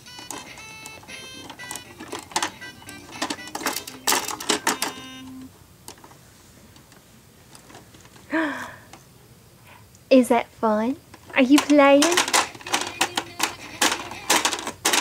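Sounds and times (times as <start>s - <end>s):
toy keyboard beeping tones: 0.0s - 5.5s, 12.0s - 14.6s
plastic keys tapped: 0.0s - 6.1s, 11.2s - 15.0s.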